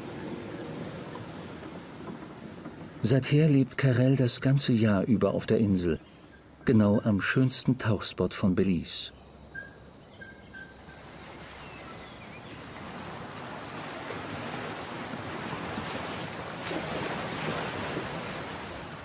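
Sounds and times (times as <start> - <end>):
sea surf rushing: 0.0 - 6.0, 10.9 - 19.0
wind: 0.0 - 19.0.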